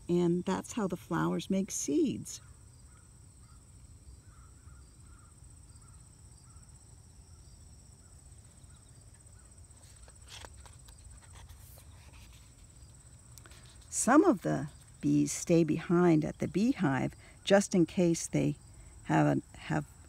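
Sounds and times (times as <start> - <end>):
crickets trilling: 0.0 - 20.0
book page turning: 9.8 - 12.8.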